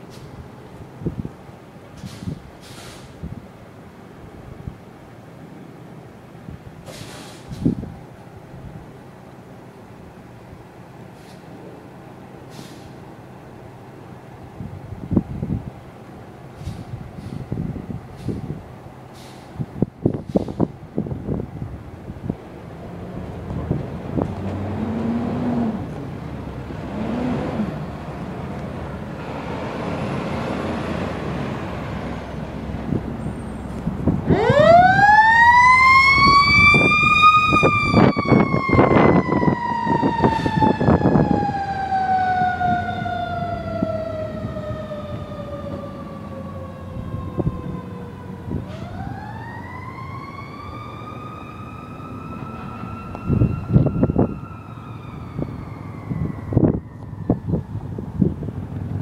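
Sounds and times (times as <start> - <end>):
truck engine rumbling: 0.0 - 59.0
fire truck siren wailing: 22.8 - 59.0.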